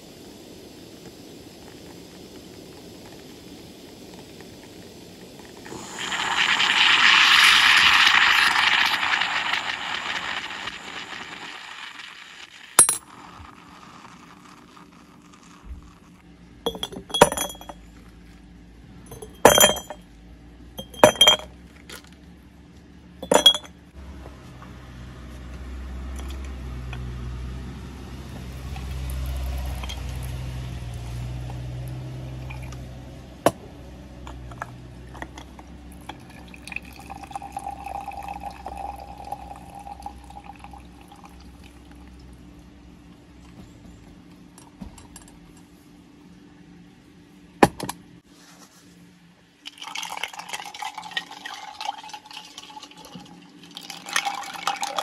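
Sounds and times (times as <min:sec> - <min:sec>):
liquid being poured: 0:05.6 - 0:16.1, 0:20.8 - 0:21.4, 0:23.2 - 0:23.7, 0:28.2 - 0:30.9, 0:34.6 - 0:42.3, 0:49.6 - 0:55.0
glass clinking: 0:12.8 - 0:13.2, 0:16.7 - 0:17.8, 0:19.1 - 0:20.0, 0:20.8 - 0:21.5, 0:23.2 - 0:23.7, 0:29.4 - 0:30.4.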